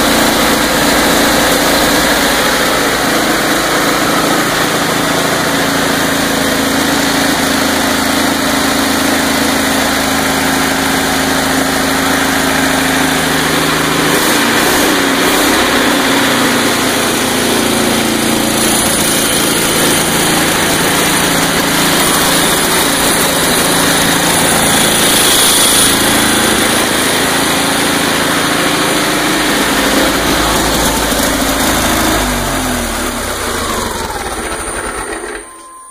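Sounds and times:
tank engine running: 0:00.0 - 0:35.9
thin high whine: 0:34.4 - 0:35.9.

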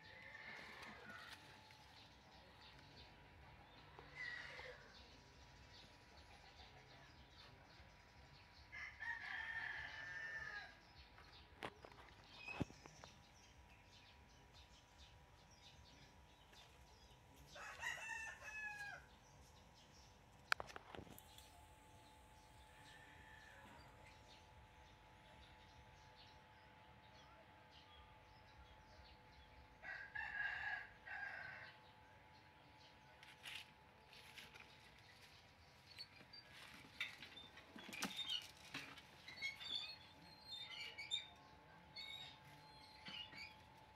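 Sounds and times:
rooster crowing: 0:08.7 - 0:10.8, 0:17.5 - 0:19.1, 0:29.8 - 0:31.8.

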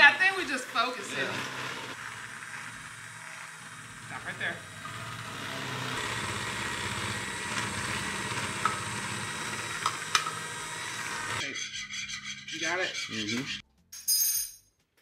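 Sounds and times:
electric hand mixer whirring: 0:00.0 - 0:11.4.

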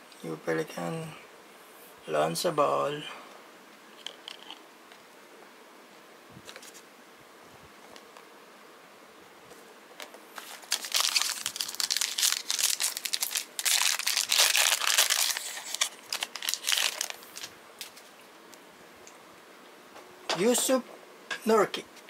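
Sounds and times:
card pack wrapper tearing and crinkling: 0:10.4 - 0:18.1.

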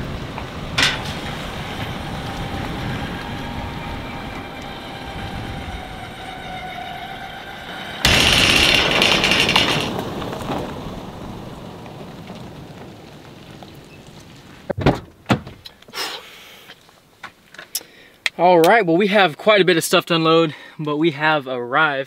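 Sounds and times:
pickup truck driving past: 0:00.0 - 0:13.2
tyres on gravel: 0:00.0 - 0:16.0.

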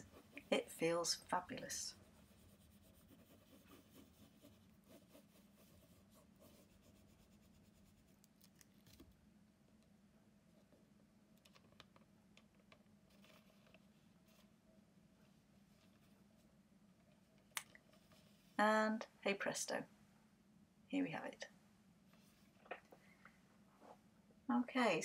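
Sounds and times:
scratching and rubbing on paper: 0:00.0 - 0:09.0
low steady hum: 0:00.0 - 0:25.0.

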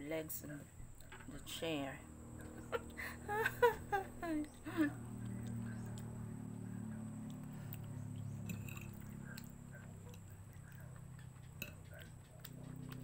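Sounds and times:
low steady hum: 0:00.0 - 0:13.0
soft chewing: 0:04.1 - 0:13.0.

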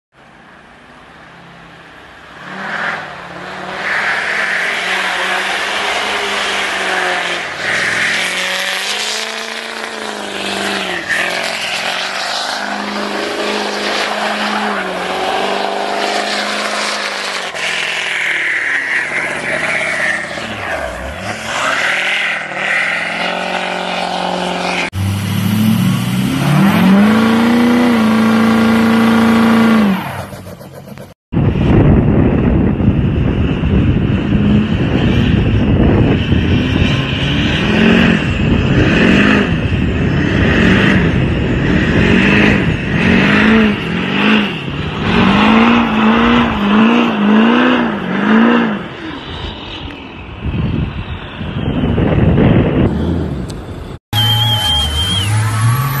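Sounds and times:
tires spinning: 0:01.4 - 0:56.0
pickup engine revving: 0:02.4 - 0:31.2, 0:33.8 - 0:49.0.

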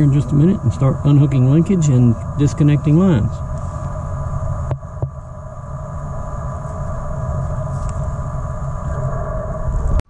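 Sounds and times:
electronic whine: 0:00.0 - 0:10.0
low rumble: 0:00.0 - 0:10.0.

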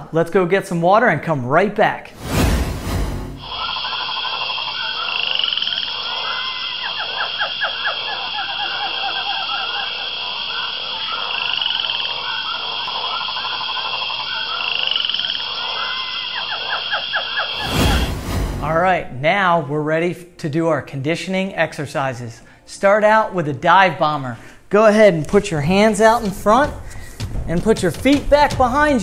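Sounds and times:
frogs croaking: 0:03.5 - 0:17.6.

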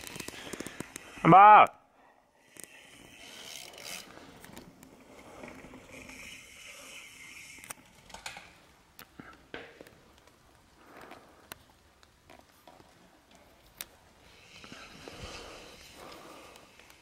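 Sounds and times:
mountain bike tyre and drivetrain noise: 0:00.0 - 0:01.3, 0:02.4 - 0:17.0.

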